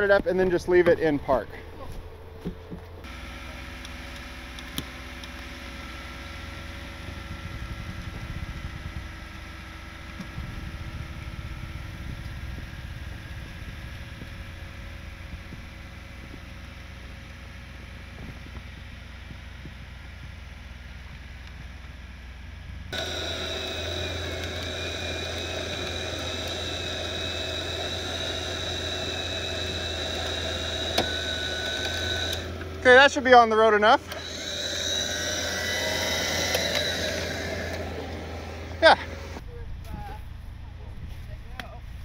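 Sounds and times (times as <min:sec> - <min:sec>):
vehicle engines idling: 0:00.0 - 0:42.0
high steady whine: 0:22.8 - 0:42.0.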